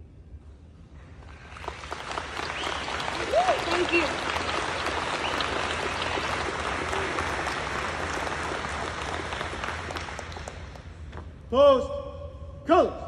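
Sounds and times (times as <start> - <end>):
audience applauding: 1.2 - 11.1.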